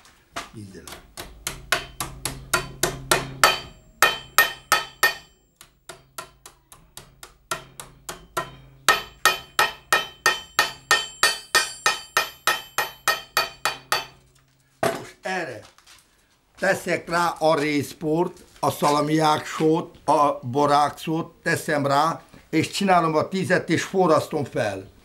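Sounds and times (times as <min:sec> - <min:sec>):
hammer ringing on copper sheet: 0:00.9 - 0:14.2.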